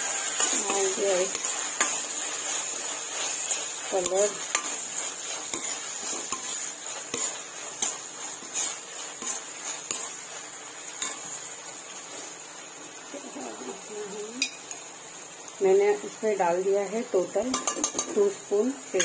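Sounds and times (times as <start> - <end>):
frying sizzle: 0.0 - 19.0
spoon knocking against pan: 17.5 - 18.2.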